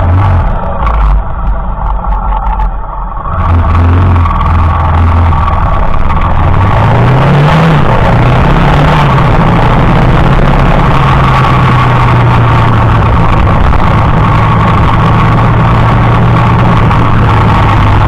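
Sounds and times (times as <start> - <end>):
motorcycle engine running: 0.0 - 18.0
wind and road noise: 0.0 - 18.0.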